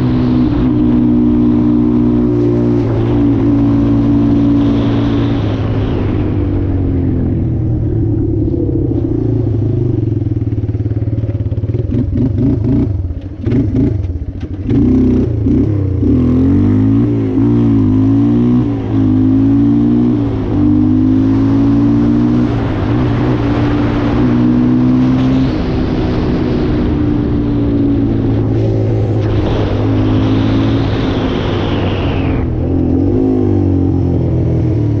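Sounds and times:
quad bike engine accelerating: 0:00.0 - 0:35.0
wind noise on microphone: 0:21.4 - 0:35.0.

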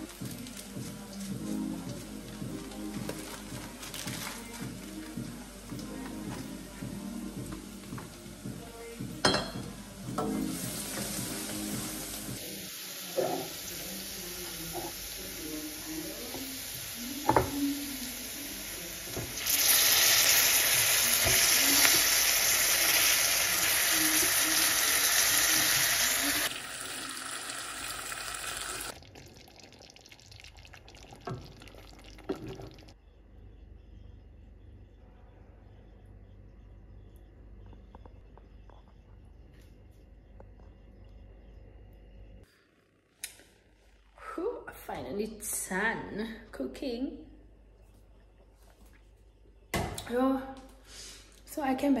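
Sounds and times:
food sizzling in a pot: 0:09.2 - 0:33.0.

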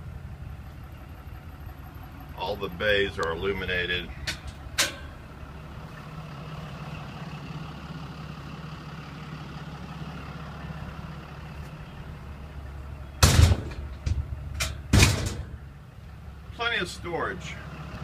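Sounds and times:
diesel truck engine idling: 0:00.0 - 0:18.0
loud short thumps: 0:13.2 - 0:15.6.

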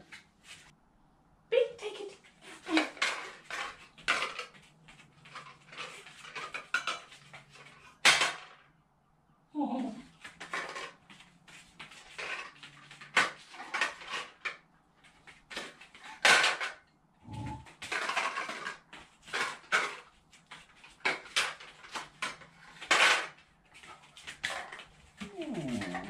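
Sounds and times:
plastic rings clattering: 0:20.7 - 0:26.0.

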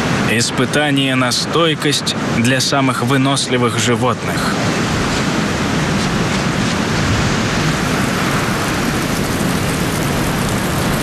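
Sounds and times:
strong wind blowing: 0:03.0 - 0:11.0.

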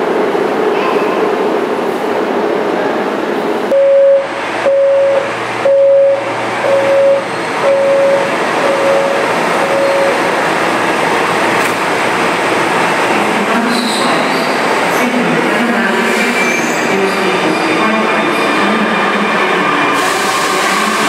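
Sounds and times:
subway station rumble: 0:00.0 - 0:21.0
train door warning beeps: 0:03.7 - 0:10.3.

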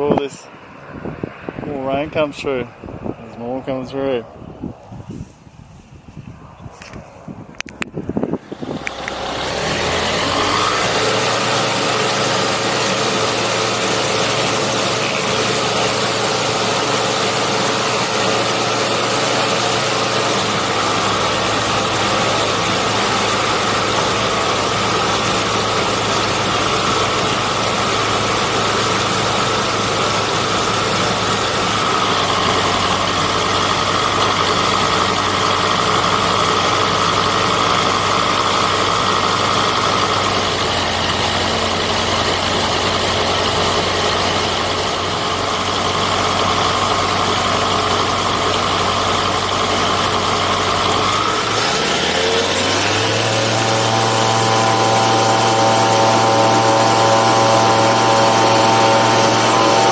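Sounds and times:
light aircraft engine and propeller: 0:00.0 - 0:59.9.

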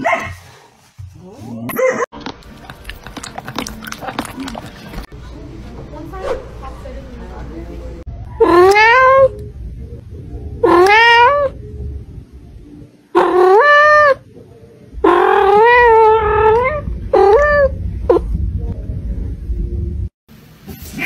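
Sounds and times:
cat meowing loudly: 0:08.4 - 0:09.3, 0:10.6 - 0:11.5, 0:15.0 - 0:17.7.

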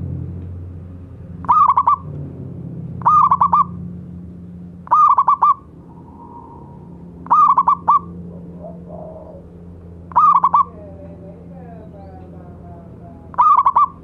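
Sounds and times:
dove cooing: 0:01.4 - 0:02.1, 0:03.0 - 0:03.8, 0:04.8 - 0:10.9, 0:13.3 - 0:14.0.

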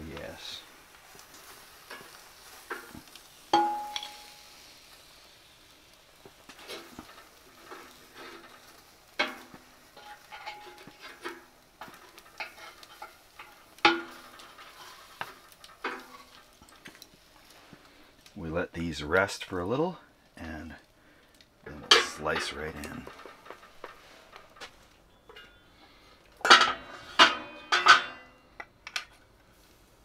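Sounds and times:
meat sizzling on embers: 0:00.0 - 0:30.0
metal tongs clinking on steel: 0:02.7 - 0:04.4, 0:09.2 - 0:11.4, 0:26.4 - 0:29.1.

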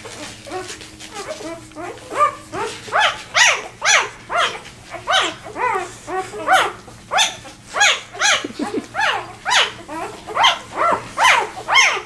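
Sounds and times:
puppy crying: 0:00.0 - 0:12.0.

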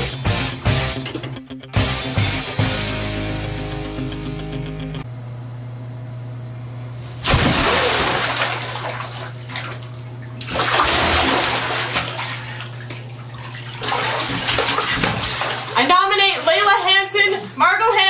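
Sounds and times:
bathtub water splashing: 0:07.1 - 0:18.0.

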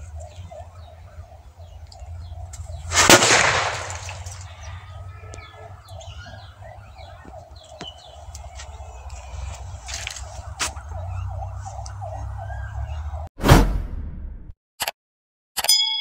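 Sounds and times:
firecracker bang: 0:02.9 - 0:04.2.

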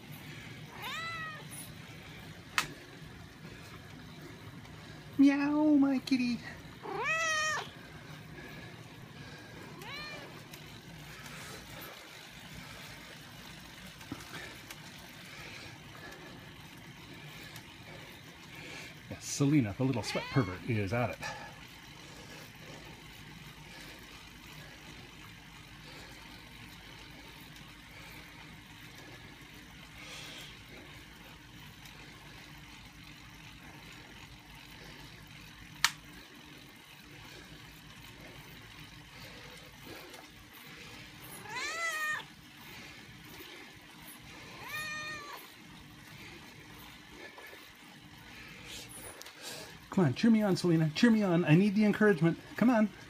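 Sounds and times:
cat meowing: 0:00.7 - 0:01.4, 0:06.8 - 0:07.7, 0:09.8 - 0:10.2, 0:20.0 - 0:20.6, 0:41.4 - 0:42.2, 0:44.6 - 0:45.4.

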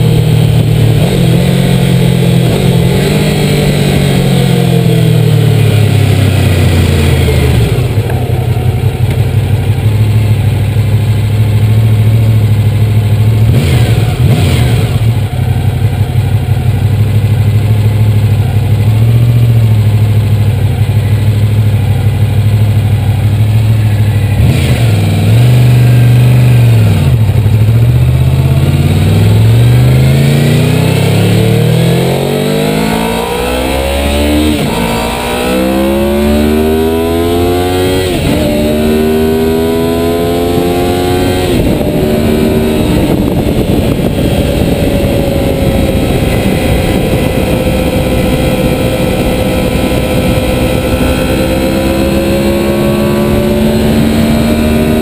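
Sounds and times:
motorcycle engine pulling away: 0:00.0 - 0:55.0
wind rush: 0:36.8 - 0:55.0.

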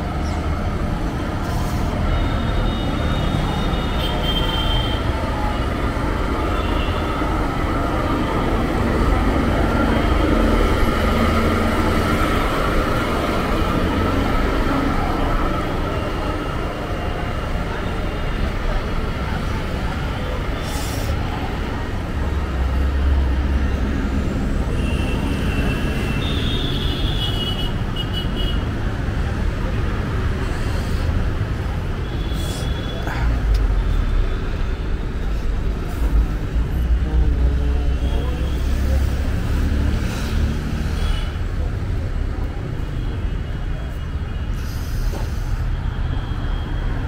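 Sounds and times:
low rumble of traffic: 0:00.0 - 0:47.0
passing vehicle rumble: 0:05.0 - 0:26.0
people's voices: 0:28.8 - 0:45.6.

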